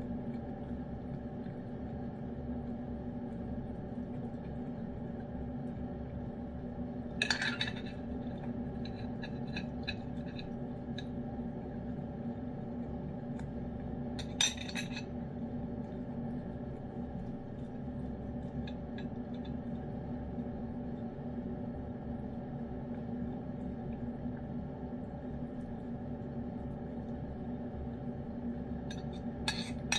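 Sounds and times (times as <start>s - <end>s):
steady low hum: 0.0s - 29.9s
cat licking food: 15.8s - 21.0s.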